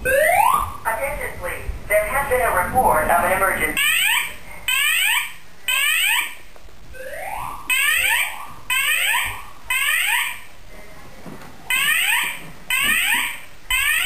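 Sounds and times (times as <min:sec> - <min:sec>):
fainter slower alarm sweep: 0:00.0 - 0:10.6
fire alarm whoop sweeps: 0:07.0 - 0:10.4.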